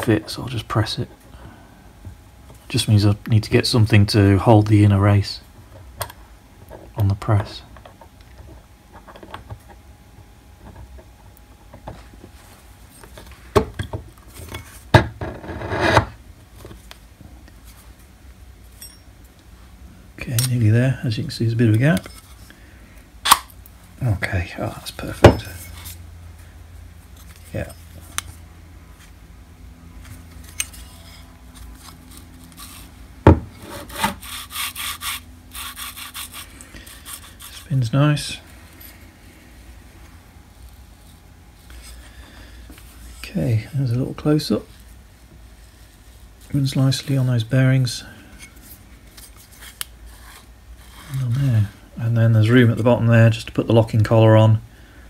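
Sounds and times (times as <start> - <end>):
metal scraping on metal: 14.5 - 16.2, 30.4 - 32.9.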